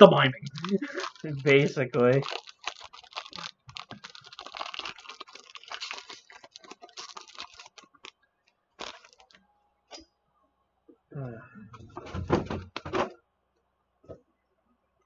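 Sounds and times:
foil wrapper crinkling: 0.0s - 8.2s, 8.8s - 9.4s
trading cards being handled: 0.4s - 8.1s.

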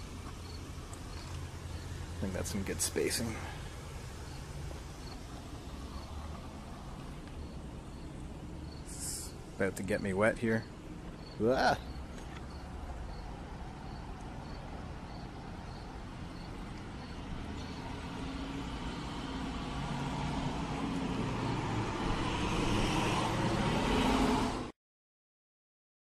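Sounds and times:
outdoor hiss: 0.0s - 20.8s
vehicle passing: 0.4s - 24.7s.

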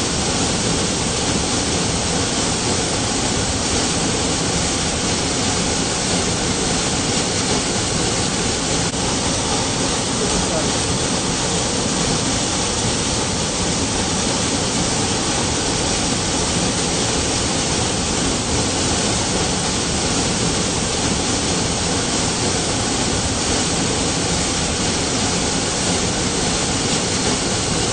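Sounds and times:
waterfall crashing: 0.0s - 27.9s.

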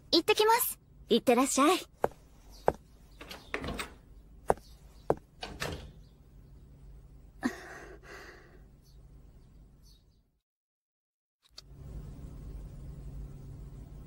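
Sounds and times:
door opening and shutting: 3.2s - 4.1s, 5.4s - 6.0s.

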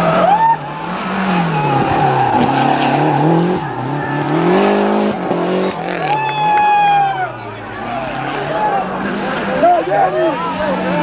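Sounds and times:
tyre squeal: 0.0s - 5.2s
rally car engine driven hard: 0.0s - 11.0s.

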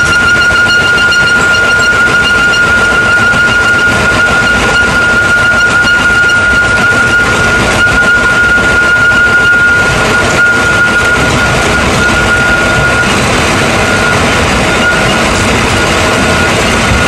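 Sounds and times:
machine running: 0.0s - 17.0s
thin high whine: 0.0s - 17.0s.

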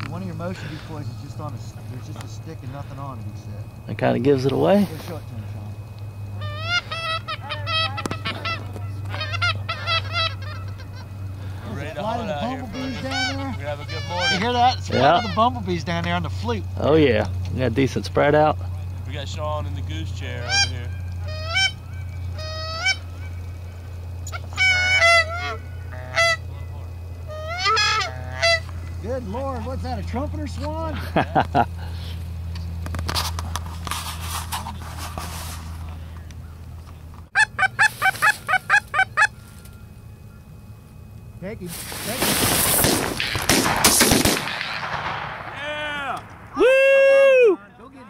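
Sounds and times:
steady low hum: 0.0s - 48.0s
goose call honks and clucks: 6.4s - 11.2s, 12.2s - 15.6s, 20.4s - 23.4s, 24.2s - 26.7s, 27.3s - 28.9s, 37.3s - 39.4s.

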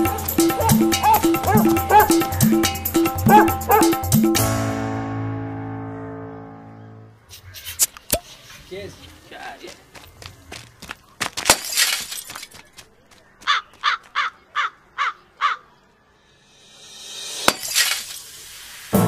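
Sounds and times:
glass bottle smashing: 11.5s - 12.5s, 17.4s - 18.2s.

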